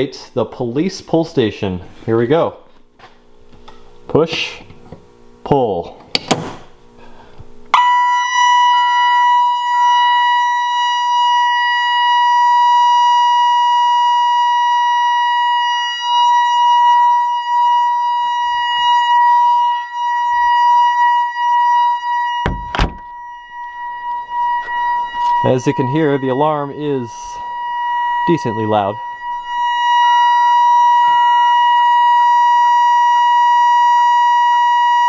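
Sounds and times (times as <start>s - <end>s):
high-pitched alarm tone: 7.7s - 35.0s
pulsing alarm tone: 7.7s - 35.0s
loud thump: 22.4s - 23.1s.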